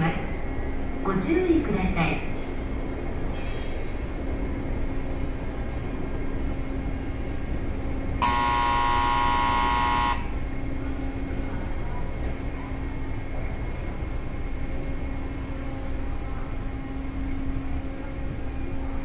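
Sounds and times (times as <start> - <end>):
electric train humming: 4.1 - 19.0
train horn: 8.2 - 10.3.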